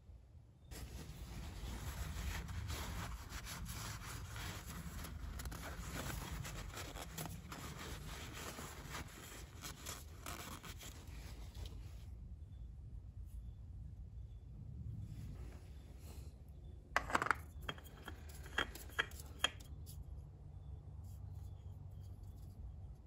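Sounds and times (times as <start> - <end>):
towel scrubbing rustle: 0.7 - 11.4.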